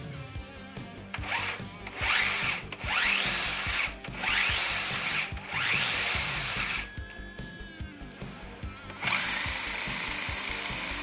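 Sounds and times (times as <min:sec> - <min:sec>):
motors whining in pulses: 0:01.2 - 0:06.9, 0:08.9 - 0:11.0.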